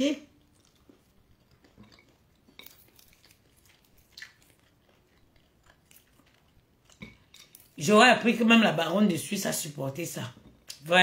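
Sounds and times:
chewing and crunching peanuts: 0:00.3 - 0:07.8.

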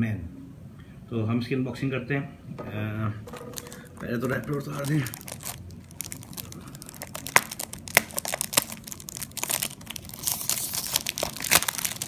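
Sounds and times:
cellophane crinkling: 0:03.2 - 0:12.0.

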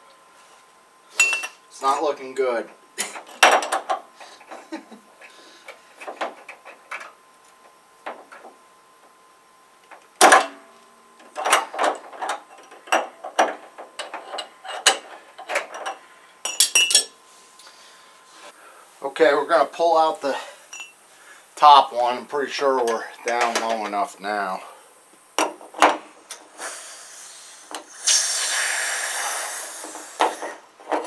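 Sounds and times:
metal hand tools clinking: 0:15.7 - 0:17.2.

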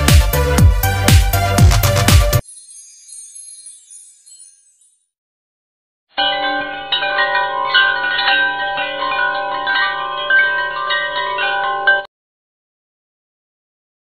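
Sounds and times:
chimes ringing: 0:02.4 - 0:05.2, 0:06.2 - 0:12.1.

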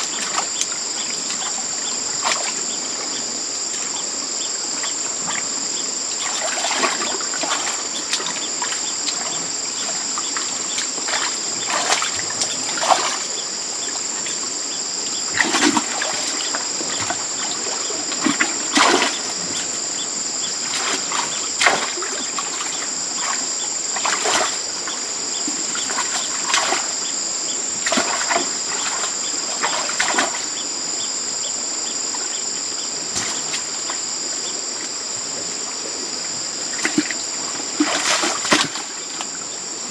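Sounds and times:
high-pitched insect chorus: 0:00.0 - 0:39.9
hands splashing in water: 0:37.8 - 0:38.9.

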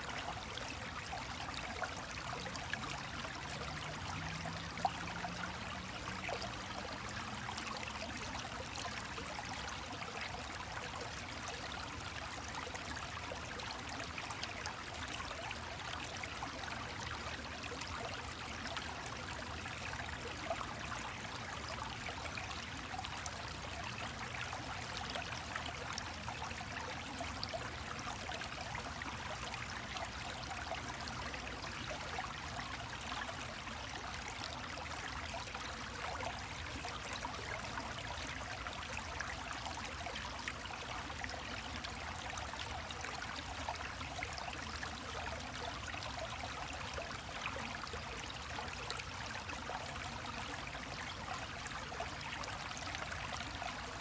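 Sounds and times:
stream trickling over rocks: 0:00.0 - 0:54.0.

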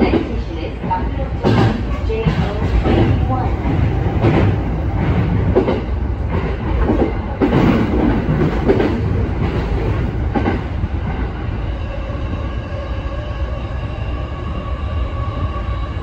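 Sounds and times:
clacks over rail joints: 0:00.0 - 0:10.6
train wheels rumbling on rail: 0:00.0 - 0:16.0.

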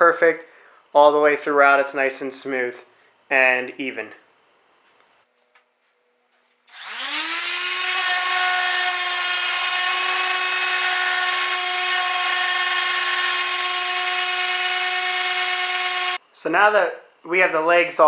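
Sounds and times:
orbit sander sanding wood: 0:06.7 - 0:16.2.

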